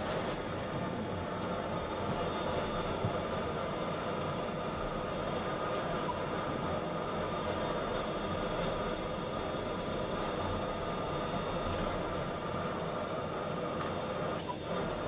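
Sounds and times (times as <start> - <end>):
submersible machinery drone: 0.0 - 15.0.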